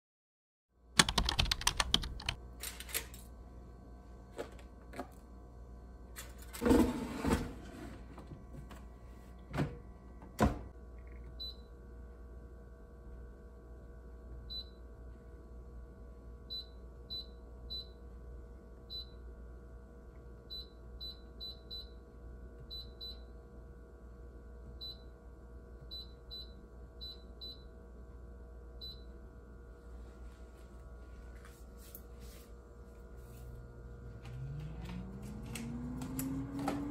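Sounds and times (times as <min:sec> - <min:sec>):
steady hum: 0:27.9 - 0:36.9.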